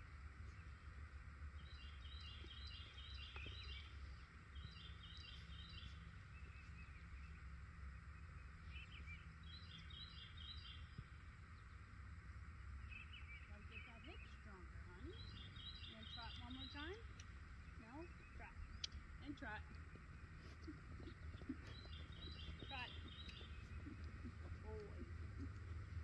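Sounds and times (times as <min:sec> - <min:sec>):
low background rumble: 0:00.0 - 0:26.0
songbird chirping: 0:00.3 - 0:26.0.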